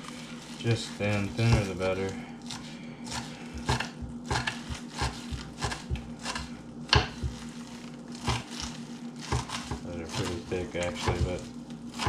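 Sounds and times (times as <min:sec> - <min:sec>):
knife chopping on wooden board: 0:01.4 - 0:01.8, 0:02.5 - 0:07.5, 0:08.2 - 0:12.0
hard knock on cutting board: 0:06.9 - 0:07.4, 0:11.0 - 0:11.4.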